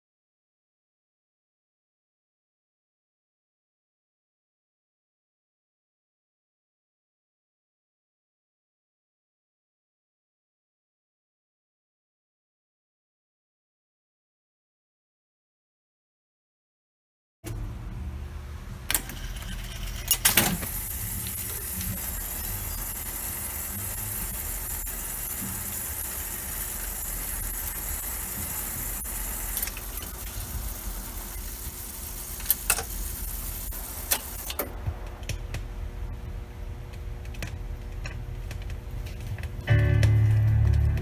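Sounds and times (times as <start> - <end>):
mechanism clicks and clunks: 18.9 - 22.1, 32.4 - 33.0, 34.0 - 35.5
jukebox motor running: 18.9 - 34.7.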